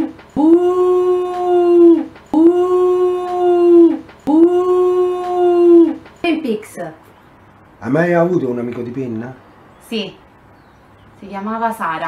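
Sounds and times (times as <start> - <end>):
woman howling: 0.0 - 6.0.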